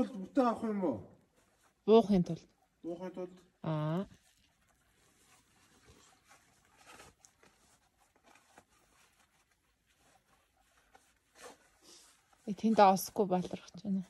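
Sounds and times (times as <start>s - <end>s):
faint rustles and scrapes: 0.0s - 14.0s.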